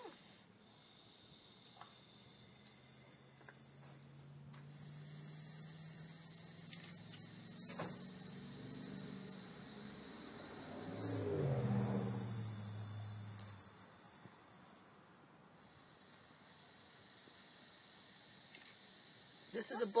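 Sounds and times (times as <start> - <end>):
snake hissing: 0.0 - 20.0.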